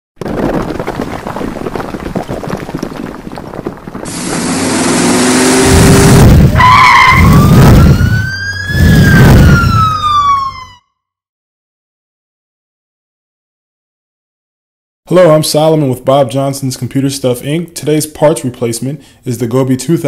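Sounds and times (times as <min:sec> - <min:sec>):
police siren wailing: 0:04.1 - 0:10.9
deep booms: 0:05.6 - 0:06.6, 0:07.2 - 0:10.1.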